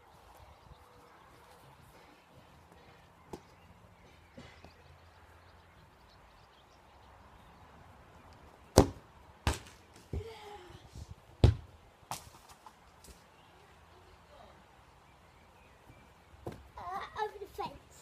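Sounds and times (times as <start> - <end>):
football kicked thud: 8.7 - 9.8, 11.4 - 12.3
ball hitting crossbar and bouncing: 8.7 - 10.1, 11.4 - 12.7.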